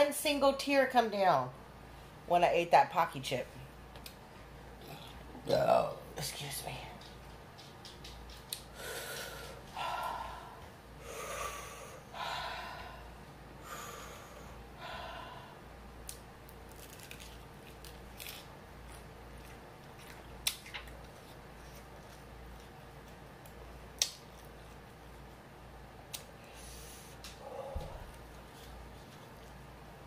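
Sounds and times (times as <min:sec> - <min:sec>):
person breathing heavily: 0:08.7 - 0:15.8, 0:26.4 - 0:28.2
crunchy chewing of fried chicken: 0:16.5 - 0:25.3.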